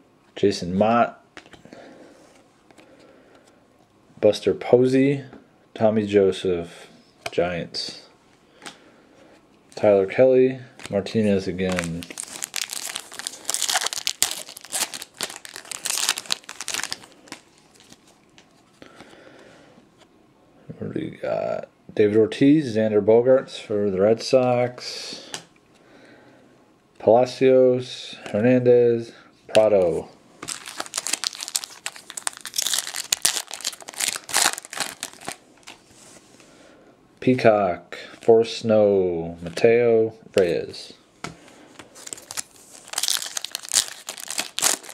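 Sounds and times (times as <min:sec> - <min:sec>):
foil pack crackling: 0:10.8 - 0:18.1, 0:30.4 - 0:35.8, 0:41.9 - 0:44.9.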